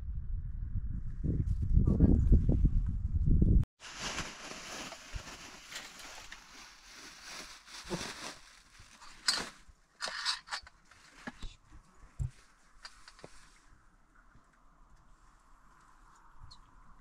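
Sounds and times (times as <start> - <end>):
plastic bag crinkling: 3.9 - 9.7.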